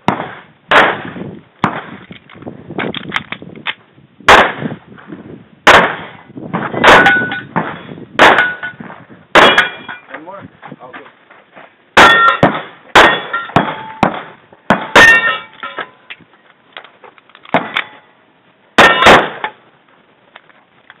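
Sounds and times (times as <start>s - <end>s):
pistol shots: 0.0s - 2.0s, 4.3s - 4.7s, 5.7s - 8.7s, 9.3s - 9.9s, 12.0s - 15.5s, 18.8s - 19.6s
steel targets clanging: 6.8s - 8.8s, 9.4s - 10.2s, 12.0s - 16.1s, 18.8s - 19.6s.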